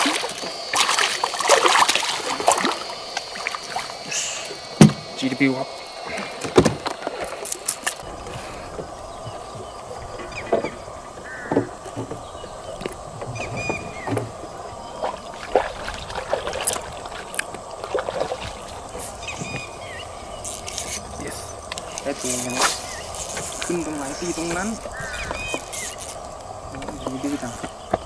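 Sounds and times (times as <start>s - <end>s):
background hum: 0.0s - 28.0s
water lapping against wooden boat: 0.0s - 28.0s
fishing reel cranking: 7.3s - 8.1s, 19.5s - 27.7s.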